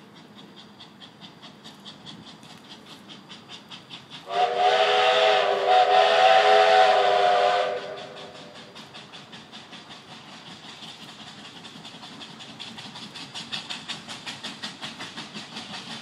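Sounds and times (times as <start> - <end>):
steam locomotive chuffing: 0.0 - 16.0
steam whistle blast: 4.3 - 8.4.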